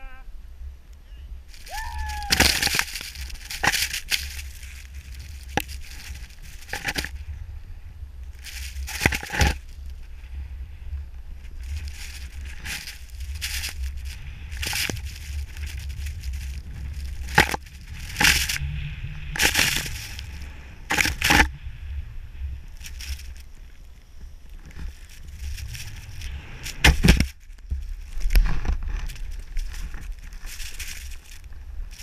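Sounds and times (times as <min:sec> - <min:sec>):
wind on microphone: 0:00.0 - 0:32.0
snowboard hissing in snow: 0:25.2 - 0:26.9.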